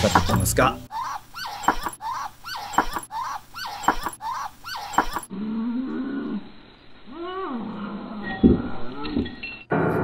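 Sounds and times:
degu squeaking: 0.1s - 5.3s.

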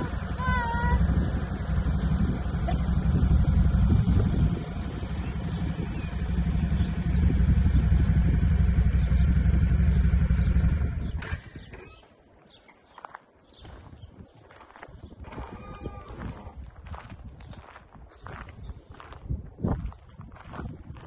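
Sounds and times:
quad bike engine running: 0.0s - 11.6s.

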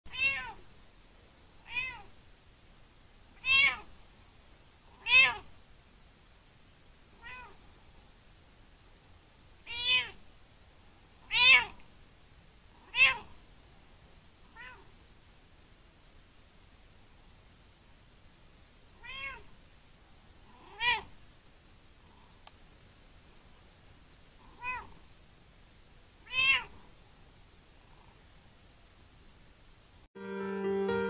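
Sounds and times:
cat meowing: 0.1s - 0.6s, 1.6s - 2.1s, 3.4s - 3.9s, 4.9s - 5.5s, 7.2s - 7.6s, 9.7s - 10.2s, 11.2s - 11.8s, 12.8s - 13.3s, 14.5s - 14.9s, 19.0s - 19.5s, 20.6s - 21.1s, 24.5s - 25.0s, 26.2s - 26.8s.

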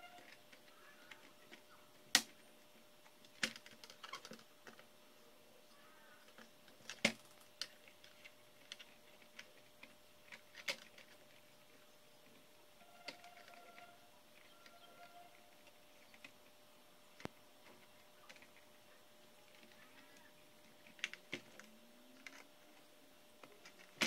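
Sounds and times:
plastic laptop parts clicking: 0.0s - 2.4s, 3.2s - 4.8s, 6.2s - 11.5s, 17.2s - 18.6s, 19.5s - 24.0s.

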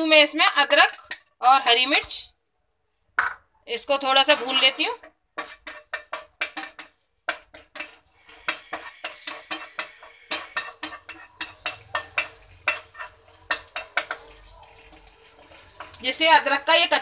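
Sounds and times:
food frying in oil: 3.8s - 17.0s
wooden spatula scraping frying pan: 4.1s - 16.0s.

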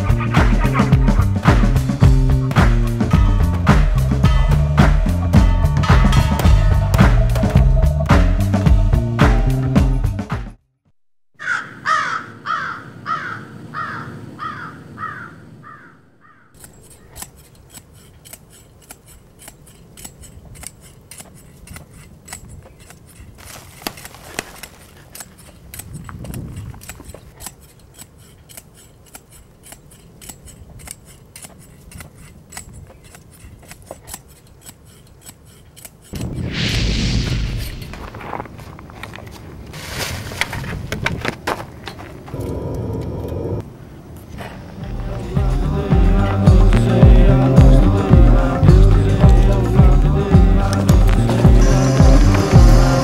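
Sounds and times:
pogo stick bouncing on dirt: 0.0s - 9.4s, 16.5s - 36.4s, 37.5s - 42.6s, 44.2s - 53.0s
loud rushing burst: 36.2s - 38.2s.

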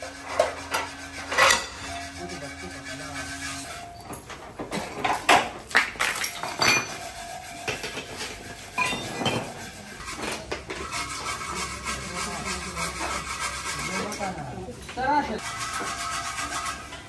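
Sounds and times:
steel chain and tools clanking: 0.3s - 11.0s.

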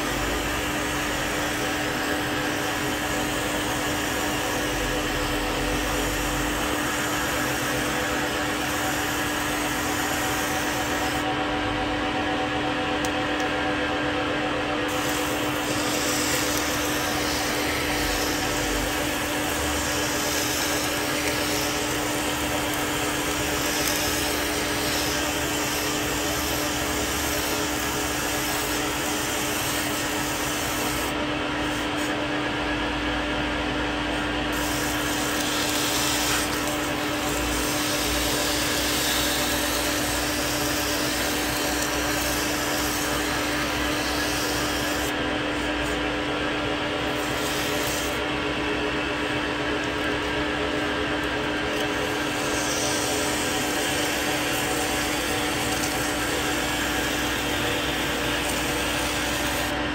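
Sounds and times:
lathe humming: 0.0s - 59.9s
abrasive paper rubbing hiss: 14.9s - 32.1s, 34.5s - 45.1s, 47.2s - 48.2s, 51.7s - 59.7s.

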